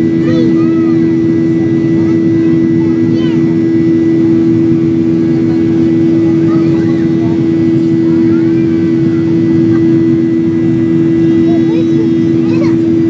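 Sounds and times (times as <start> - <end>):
jet engine drone in cabin: 0.0 - 13.0.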